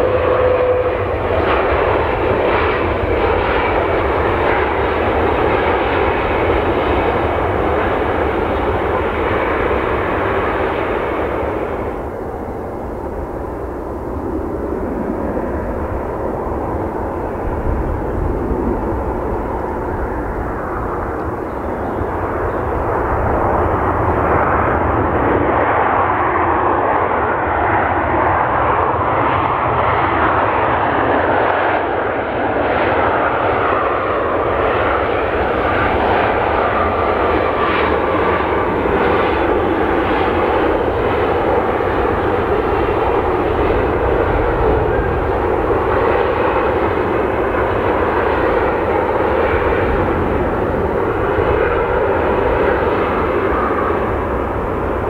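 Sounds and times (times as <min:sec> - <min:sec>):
jet engines running loud: 0:00.0 - 0:55.0.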